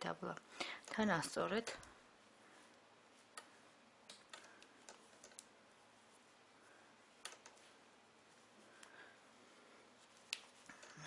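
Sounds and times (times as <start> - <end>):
knitting needles clicking: 0.6 - 2.0, 3.2 - 5.6, 7.2 - 7.7, 10.2 - 11.0.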